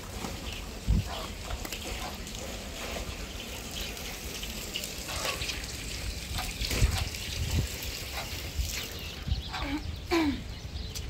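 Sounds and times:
rushing water: 0.0s - 9.8s.

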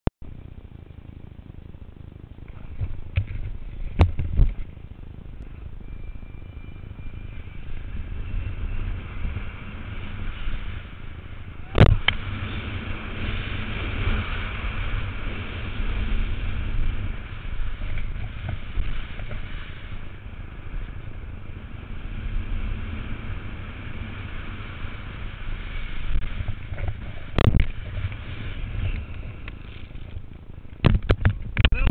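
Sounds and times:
wind on camera microphone: 0.2s - 31.9s
snowboard scraping on packed snow: 12.1s - 30.2s.

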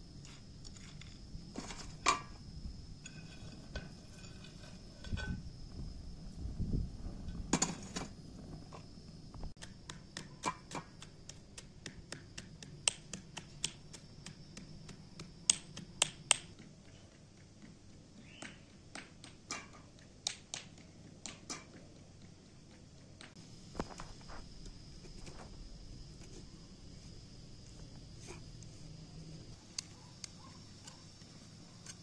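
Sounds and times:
stone pestle knocking in mortar: 9.6s - 16.4s.

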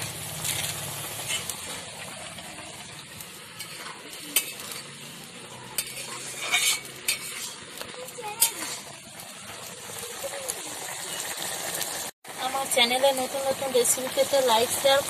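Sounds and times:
curry bubbling and hissing in wok: 0.0s - 15.0s
wood fire: 0.0s - 15.0s
spatula scraping pan: 0.3s - 2.1s, 3.4s - 9.6s
spatula clinking on pan: 5.7s - 7.5s.

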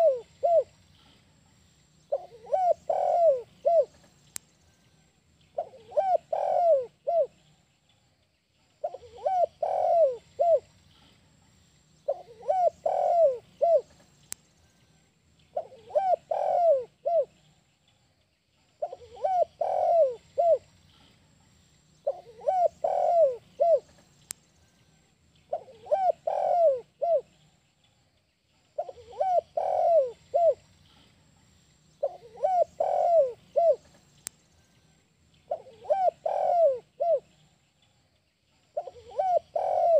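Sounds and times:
dove cooing: 0.0s - 0.8s, 2.1s - 4.0s, 5.6s - 7.4s, 8.8s - 10.7s, 12.1s - 14.0s, 15.5s - 17.4s, 18.8s - 20.7s, 22.0s - 24.0s, 25.5s - 27.4s, 28.8s - 30.7s, 32.0s - 34.0s, 35.5s - 37.4s, 38.8s - 39.9s.

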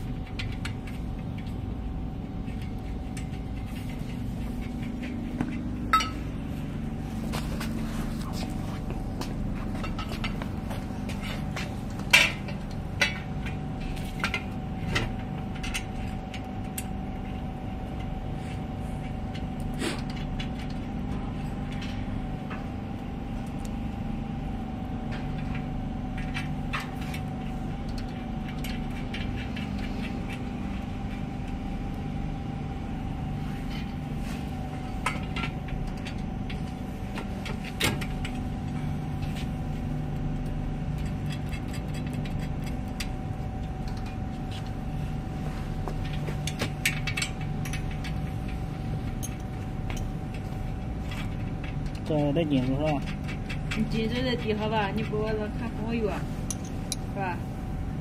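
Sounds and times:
machine hum with whine: 0.0s - 58.0s
metal clicks and clinks: 46.0s - 50.4s.

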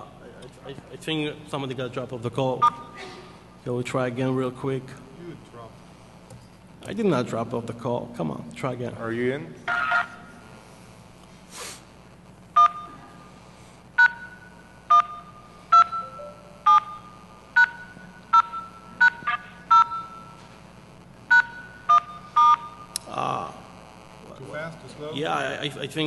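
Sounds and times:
telephone keypad tones: 14.9s - 20.3s.

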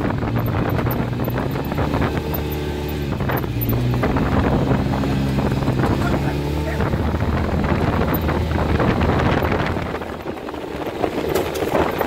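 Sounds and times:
off-road vehicle engine: 0.0s - 12.0s
wind noise on microphone: 0.0s - 12.0s
knocks and rattles: 7.7s - 12.0s.

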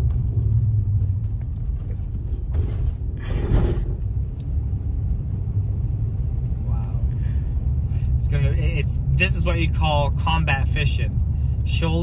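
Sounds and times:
car cabin rumble: 0.0s - 6.8s
car jolting over speed bump: 2.1s - 4.1s.

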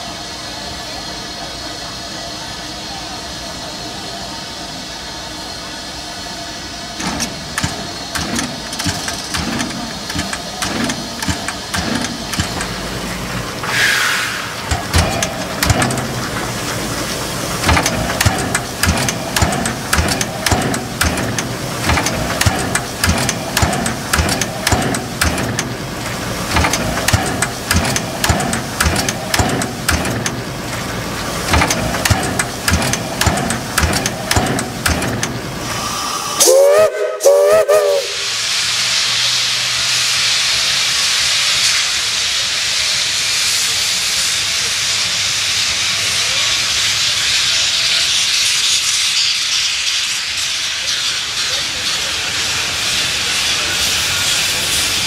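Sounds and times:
steam hissing: 0.0s - 55.0s
steam locomotive chuffing: 0.0s - 55.0s
steam whistle blast: 13.6s - 14.6s, 35.8s - 38.6s.

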